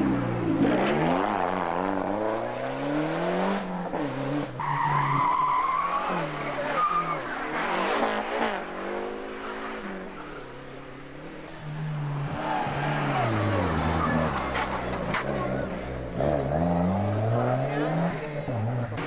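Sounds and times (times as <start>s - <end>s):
car engine revving: 0.0s - 19.0s.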